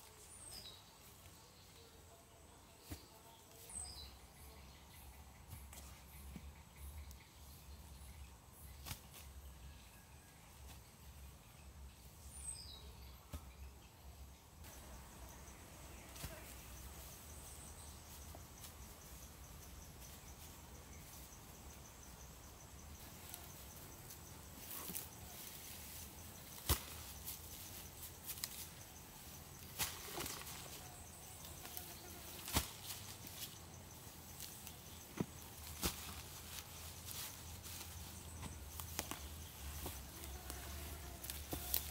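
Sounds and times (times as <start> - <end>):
rustling of long grass: 14.7 - 41.9.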